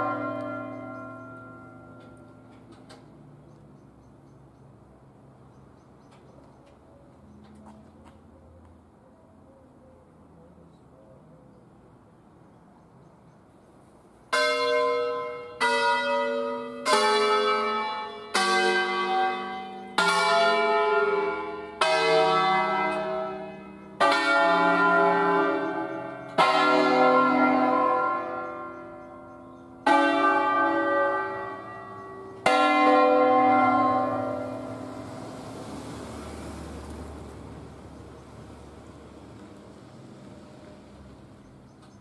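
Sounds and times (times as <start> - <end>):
church bells ringing: 0.0 - 3.0, 14.3 - 36.5.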